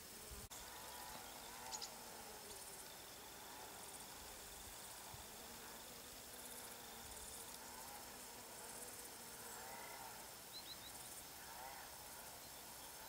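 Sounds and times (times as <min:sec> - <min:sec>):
honeybee buzzing: 0:00.0 - 0:12.0.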